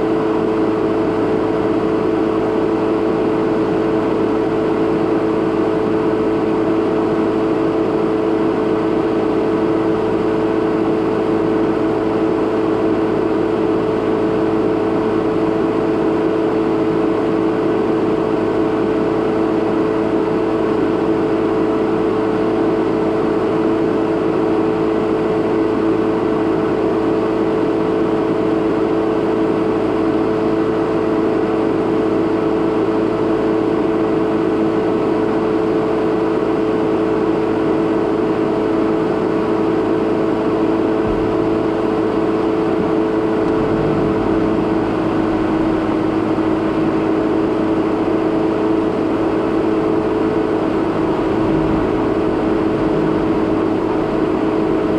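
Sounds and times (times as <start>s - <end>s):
car driving on sandy track: 0.0s - 54.9s
low engine rumbles: 28.1s - 54.9s
car engine idling: 39.1s - 54.9s.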